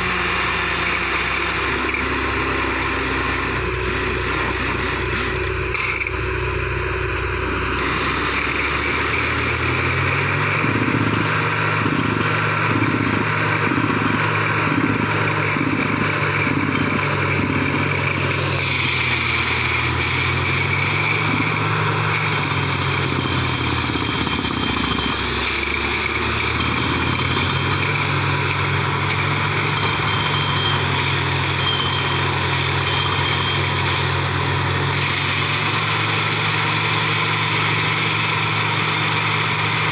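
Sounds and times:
heavy engine under load: 0.0s - 39.9s
hiss of air and drilling: 3.0s - 5.4s.

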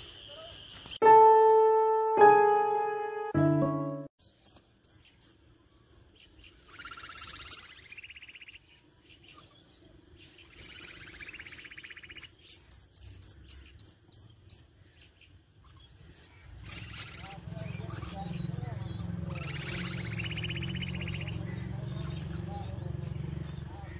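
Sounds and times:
raspy buzzing bird calls: 4.2s - 5.4s, 6.6s - 8.5s, 10.5s - 14.7s, 16.1s - 22.7s
nestling birds chirping: 4.2s - 23.9s.

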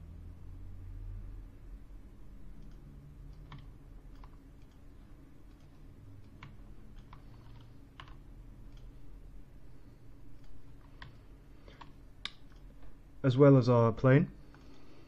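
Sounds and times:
low steady hum: 0.0s - 15.0s
computer mouse clicks: 2.5s - 8.9s, 10.3s - 12.7s.

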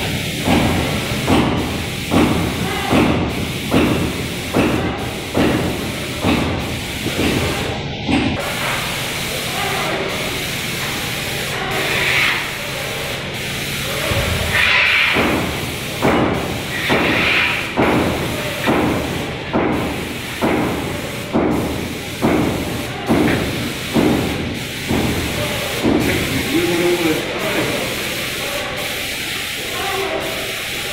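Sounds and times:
sprayer pump thumping: 0.0s - 8.8s, 14.0s - 27.8s
paint sprayer hissing: 0.0s - 30.9s.

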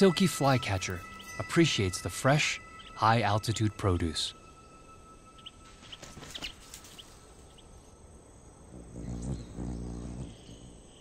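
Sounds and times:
high bird chirps: 0.0s - 7.9s
hummingbird wings buzzing: 5.4s - 11.0s.

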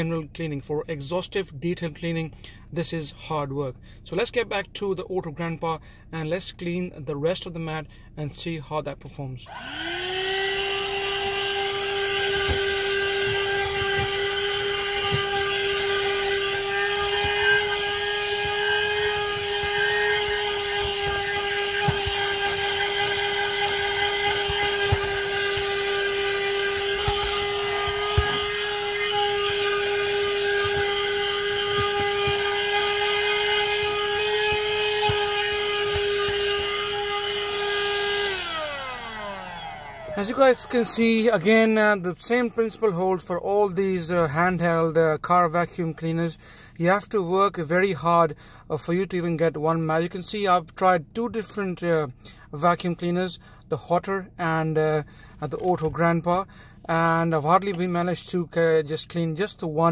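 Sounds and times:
handheld vacuum whine: 9.4s - 43.0s, 55.6s - 55.9s
small clicks: 26.8s - 28.5s.

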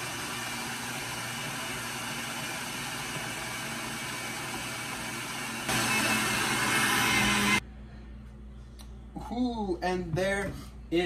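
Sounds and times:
blender motor running: 0.0s - 7.6s.

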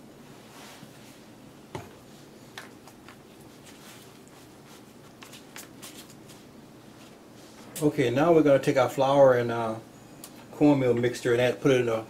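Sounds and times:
paper rustling: 3.1s - 7.2s.

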